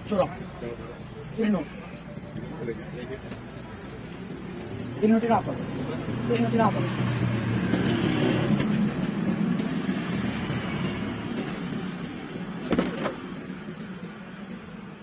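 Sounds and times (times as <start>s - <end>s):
sharp knock: 12.7s - 13.2s.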